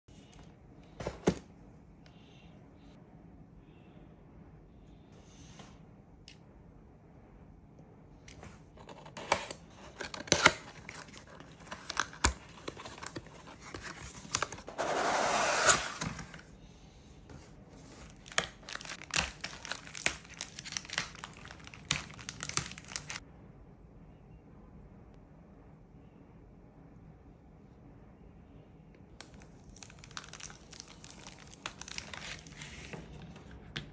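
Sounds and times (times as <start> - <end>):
plastic bags crinkling: 18.0 - 23.2, 29.3 - 33.3.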